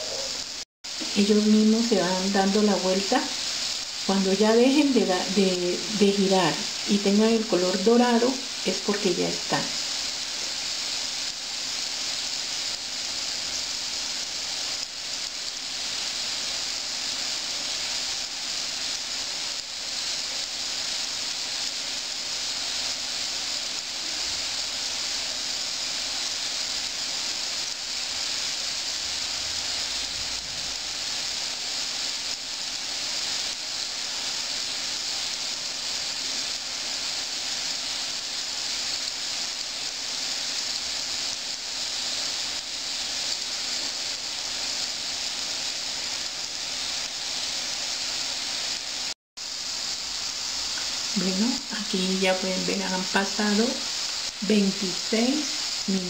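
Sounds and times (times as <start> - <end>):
hot oil sizzling: 0.0 - 56.0.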